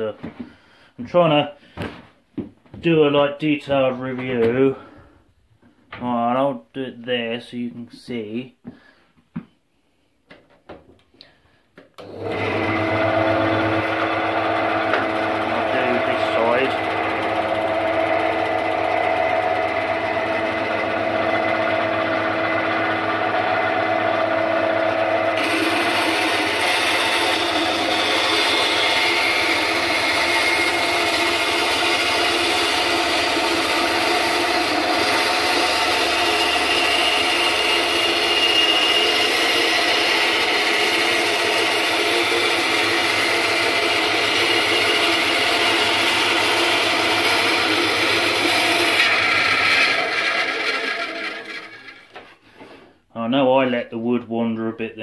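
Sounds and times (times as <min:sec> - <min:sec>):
bandsaw motor running: 0:12.0 - 0:52.2
saw blade cutting wood: 0:12.0 - 0:52.4.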